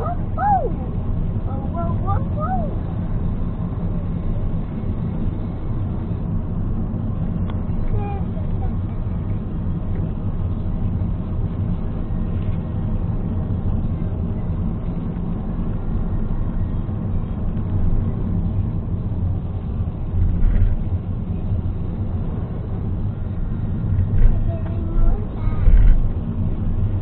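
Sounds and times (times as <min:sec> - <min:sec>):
car engine and road noise: 0:00.0 - 0:27.0.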